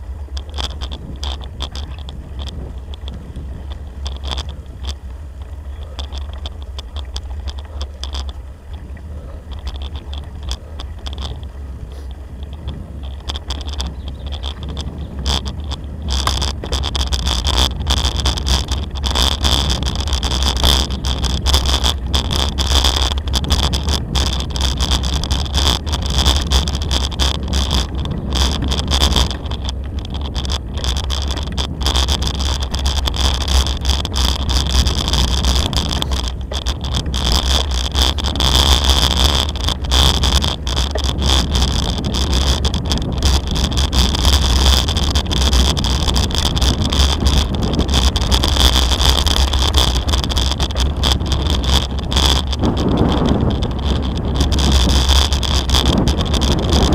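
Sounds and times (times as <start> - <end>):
bicycle tyres on gravel: 0.0 - 56.9
wind on microphone: 0.0 - 56.9.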